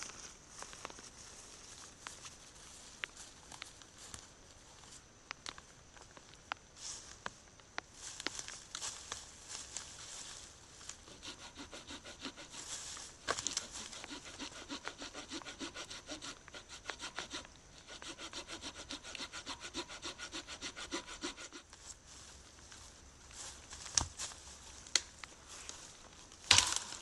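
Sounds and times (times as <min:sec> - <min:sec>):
hand saw cutting branch: 0:11.0 - 0:21.7, 0:26.5 - 0:27.0
branch cracking: 0:24.8 - 0:27.0.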